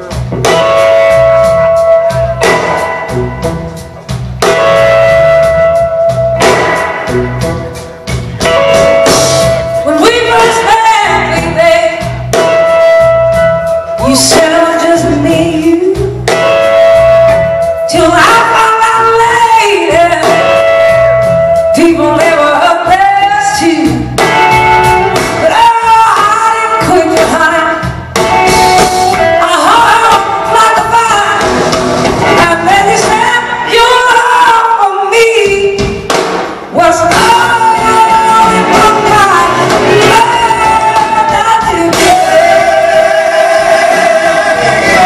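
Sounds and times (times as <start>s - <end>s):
live band playing: 0.0s - 45.0s
woman singing: 9.6s - 12.2s, 13.9s - 16.2s, 17.7s - 20.8s, 21.6s - 24.2s, 25.4s - 28.0s, 29.2s - 31.5s, 32.3s - 36.0s, 36.7s - 45.0s.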